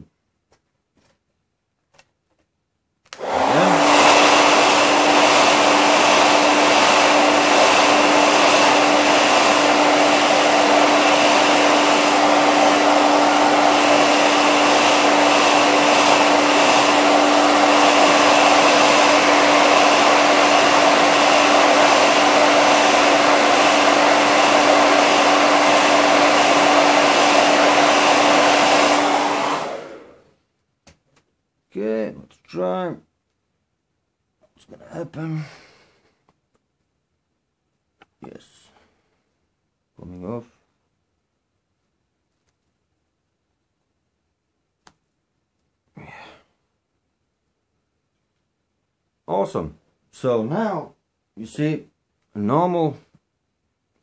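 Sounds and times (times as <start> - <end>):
hair dryer blowing: 3.1 - 30.4, 50.2 - 51.5.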